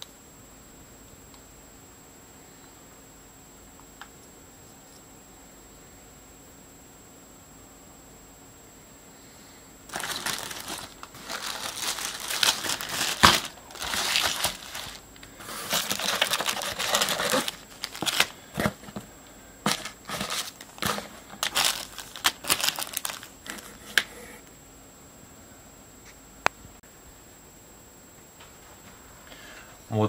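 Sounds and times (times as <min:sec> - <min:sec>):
cardboard box rustling: 0:09.9 - 0:23.8
plastic bags crinkling: 0:09.9 - 0:24.1.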